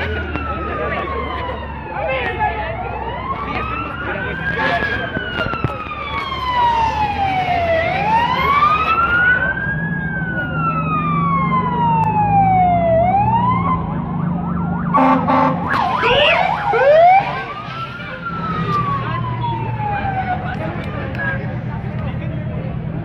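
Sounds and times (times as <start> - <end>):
emergency vehicle siren wailing: 0.0 - 23.0
siren rising yelps: 0.4 - 20.6.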